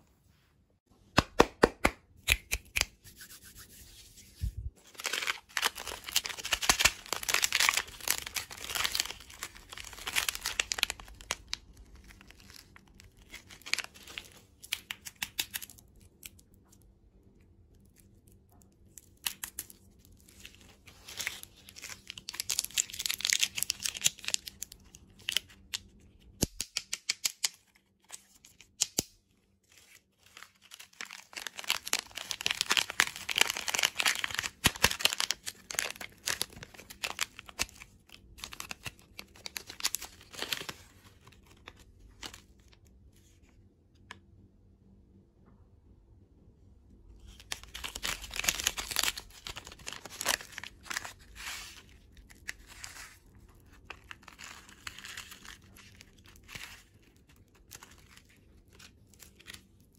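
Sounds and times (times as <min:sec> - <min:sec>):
plastic wrappers crinkling: 0:04.8 - 0:16.4, 0:19.0 - 0:25.9, 0:29.7 - 0:42.8, 0:47.3 - 0:59.9
wrapper tearing: 0:04.8 - 0:16.4, 0:19.2 - 0:25.8, 0:29.8 - 0:42.5, 0:47.3 - 0:59.9.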